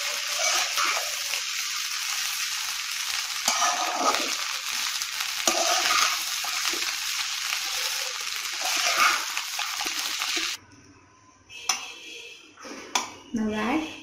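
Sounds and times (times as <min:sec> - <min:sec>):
spatula scraping a pan: 0:00.0 - 0:01.3, 0:03.4 - 0:04.5, 0:05.4 - 0:06.9, 0:07.6 - 0:09.9
rice sizzling in a pan: 0:00.0 - 0:10.6.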